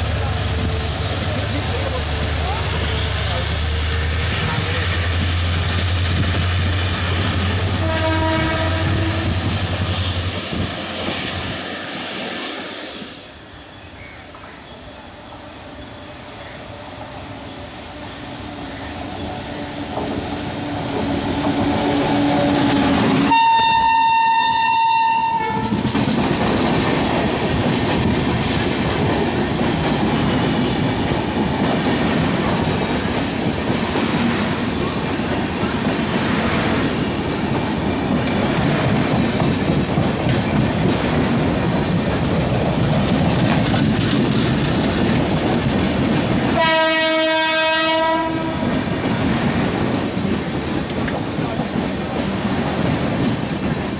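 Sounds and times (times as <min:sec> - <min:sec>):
train rushing past: 0:00.0 - 0:53.9
lower-pitched train horn: 0:07.4 - 0:09.6, 0:21.6 - 0:25.8, 0:46.6 - 0:48.8
high locomotive horn: 0:07.5 - 0:09.5, 0:21.7 - 0:25.8, 0:46.6 - 0:48.8
wheels clattering over rail joints: 0:37.0 - 0:46.6.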